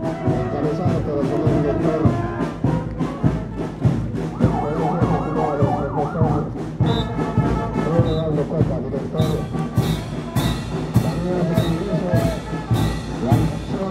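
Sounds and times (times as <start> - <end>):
marching band playing: 0.0 - 13.9
ambulance siren yelping: 4.3 - 6.8.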